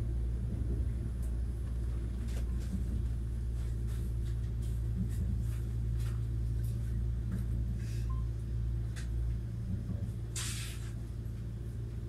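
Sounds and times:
train interior hum and rumble: 0.0s - 12.0s
short hisses: 10.4s - 10.9s.

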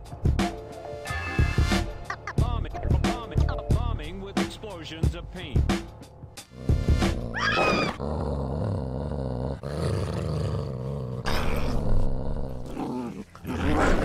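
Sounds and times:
dog growling low: 6.5s - 14.0s.

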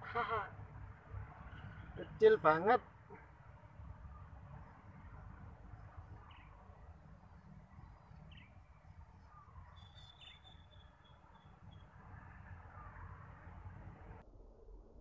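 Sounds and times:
bird chirps: 4.0s - 13.7s.

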